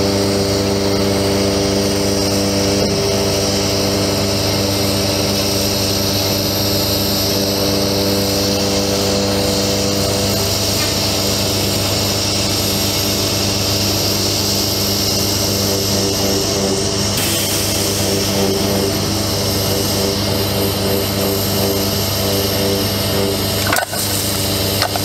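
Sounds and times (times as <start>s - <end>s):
hydraulic hiss: 16.9s - 25.0s.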